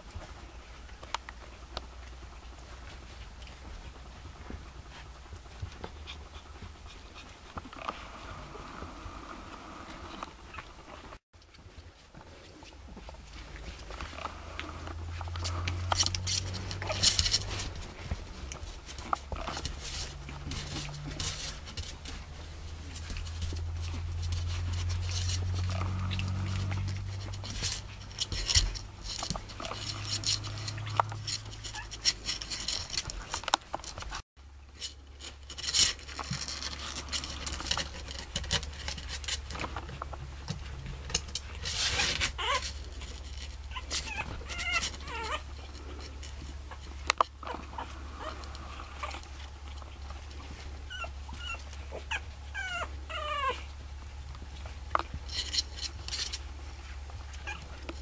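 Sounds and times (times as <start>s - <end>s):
puppy paws scratching and pattering: 0.0s - 58.0s
puppies whimpering squeaks: 23.8s - 32.9s, 41.7s - 45.7s, 46.7s - 53.7s, 57.3s - 57.8s.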